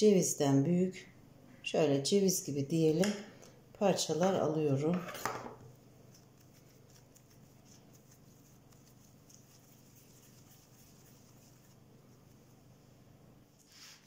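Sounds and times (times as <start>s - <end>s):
hands patting and shaping dough: 6.0s - 12.5s.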